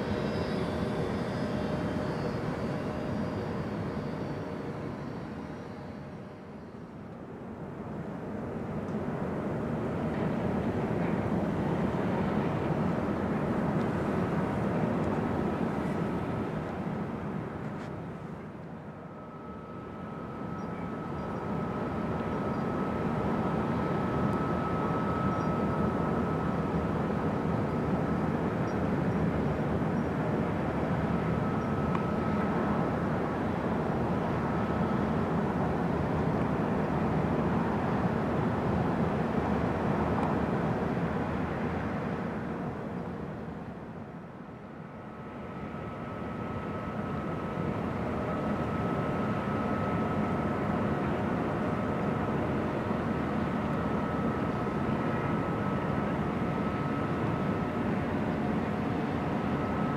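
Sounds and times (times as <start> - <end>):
faint thin whine: 0.0 - 7.2, 8.8 - 43.8, 44.6 - 59.9.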